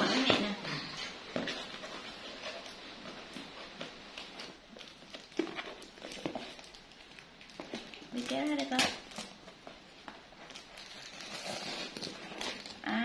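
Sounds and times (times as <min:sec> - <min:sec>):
blade slitting packing tape: 0:10.7 - 0:12.8.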